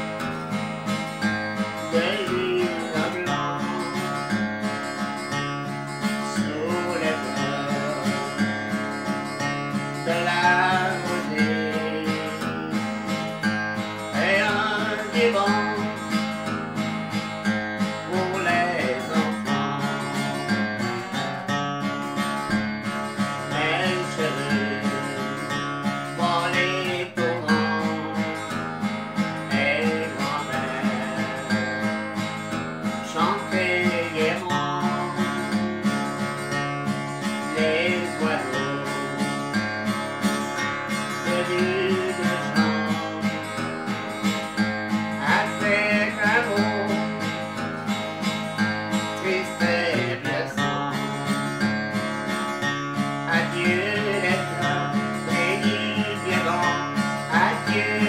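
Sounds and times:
man singing: 0.0 - 58.0
strummed acoustic guitar: 0.0 - 58.0.

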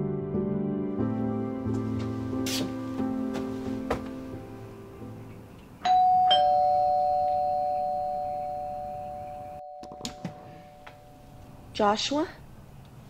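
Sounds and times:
background music: 0.0 - 11.5
two-note doorbell chime: 5.8 - 11.6.

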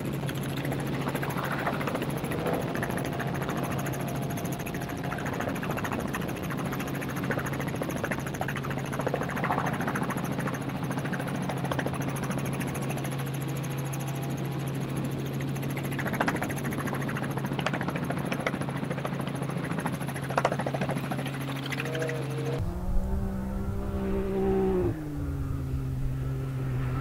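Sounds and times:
engine droning: 0.0 - 27.0.

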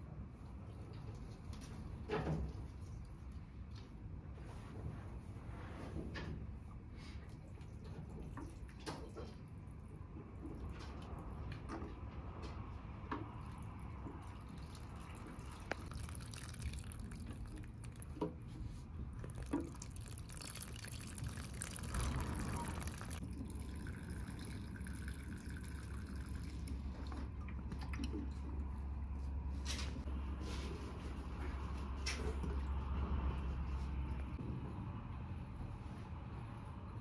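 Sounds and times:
water dripping: 13.4 - 18.4, 19.1 - 28.4
running water: 13.9 - 18.3, 19.1 - 27.4.

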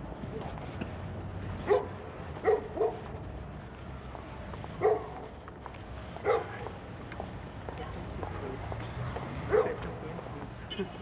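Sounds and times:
dog barking: 1.6 - 3.0, 4.8 - 5.3, 6.2 - 6.6, 9.5 - 9.8.

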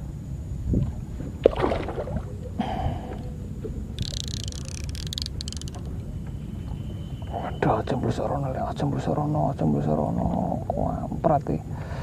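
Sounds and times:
wind rumble on microphone: 0.0 - 5.2
fish splashing in water: 1.4 - 2.4.

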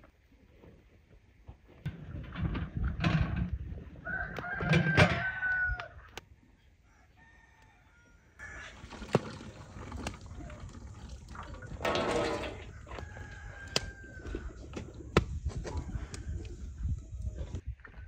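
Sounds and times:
rooster crowing: 4.0 - 6.0, 6.8 - 8.8, 12.5 - 14.8
knocks and clanks: 11.7 - 12.7.

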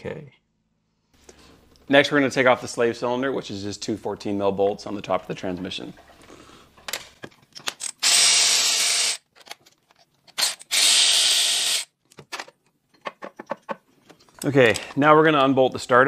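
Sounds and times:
cordless electric ratchet running: 7.9 - 9.2, 10.4 - 11.9.

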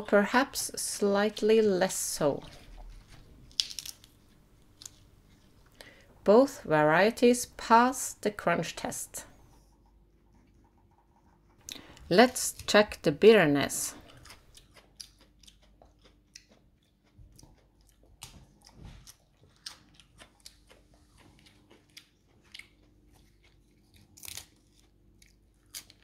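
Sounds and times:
lettuce leaves crunching: 2.6 - 4.2, 23.9 - 24.9.

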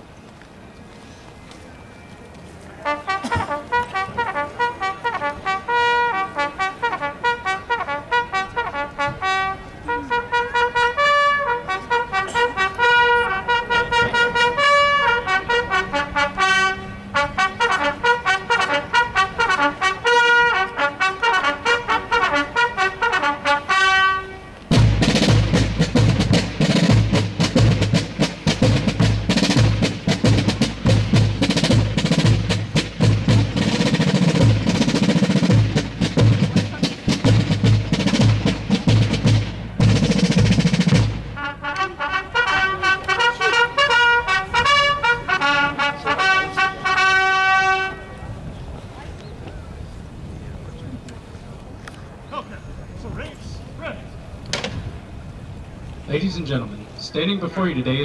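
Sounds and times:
bugles playing a military call: 2.7 - 48.5
snare and bass drum rolls: 24.7 - 41.5.

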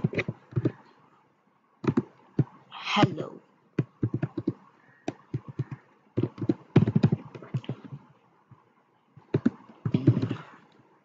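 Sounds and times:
keyboard typing: 0.0 - 0.9, 1.8 - 2.6, 3.8 - 10.8.

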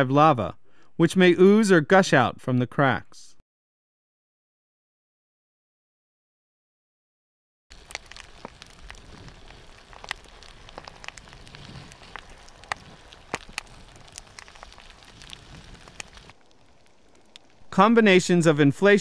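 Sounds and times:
soft hiss of lava: 7.7 - 18.2
lava crust crackling: 7.7 - 19.0.

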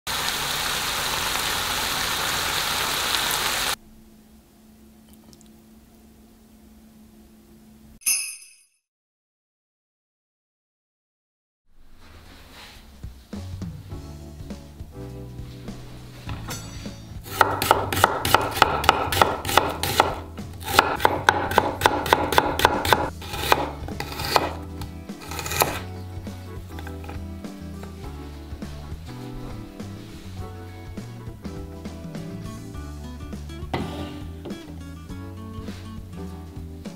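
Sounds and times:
meat sizzling in frying pan: 0.1 - 3.8
knife chopping on cutting board: 17.2 - 25.9, 26.7 - 27.2.

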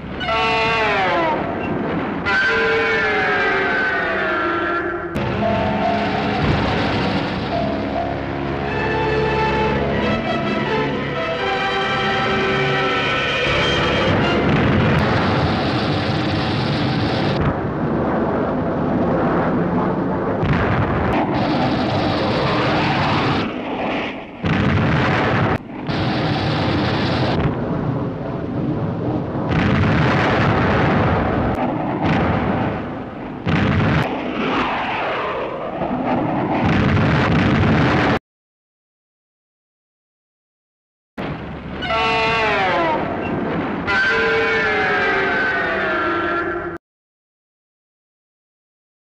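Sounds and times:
explosions: 0.0 - 3.9, 5.1 - 8.4, 13.4 - 38.2, 41.2 - 45.8
jet fighters flying past: 0.0 - 38.2, 41.2 - 46.8.

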